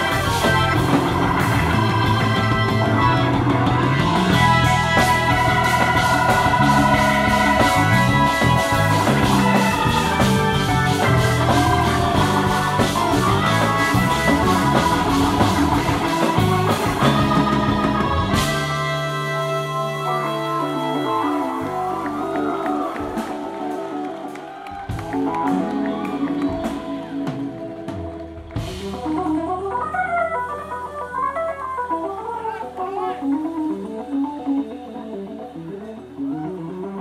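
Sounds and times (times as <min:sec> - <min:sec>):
steady drum beat: 0:00.0 - 0:19.2
percussion: 0:00.0 - 0:30.4
electric bass line: 0:00.0 - 0:37.0
organ-toned keyboard solo: 0:00.0 - 0:37.0.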